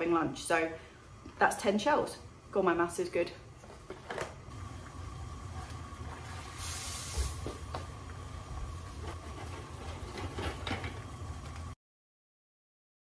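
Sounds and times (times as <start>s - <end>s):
water boiling in a pot: 4.4s - 11.8s
salt fizzing in water: 6.0s - 7.6s.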